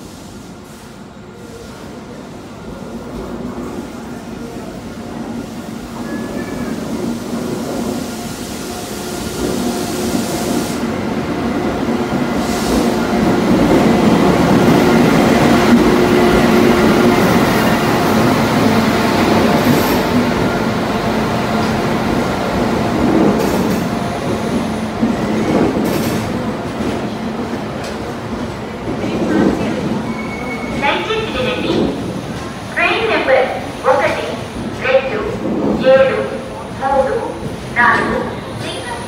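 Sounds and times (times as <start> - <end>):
electric train rolling rumble: 0.0 - 39.0.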